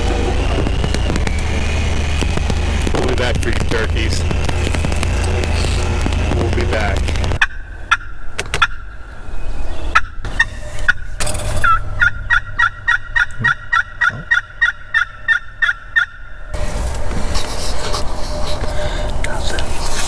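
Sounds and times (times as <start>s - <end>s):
turkey yelping: 7.4s - 9.0s, 11.6s - 16.4s.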